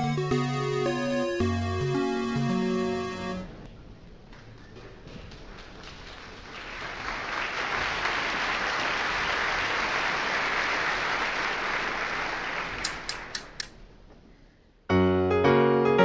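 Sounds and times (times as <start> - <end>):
audience applause: 5.2 - 12.9.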